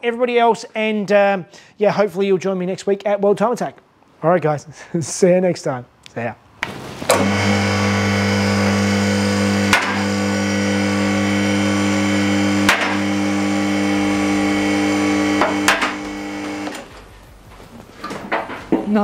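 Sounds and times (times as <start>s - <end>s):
low synth drone chord: 7.2s - 16.7s.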